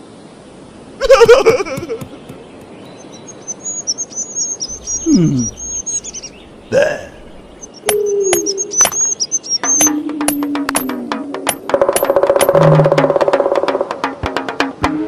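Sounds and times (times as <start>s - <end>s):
cartoon birdsong chirping: 1.0s - 11.2s.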